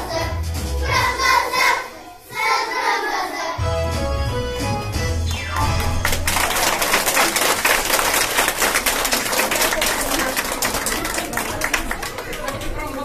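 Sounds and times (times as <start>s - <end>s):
song playing: 2.5s - 7.4s
audience applauding: 5.6s - 13.0s.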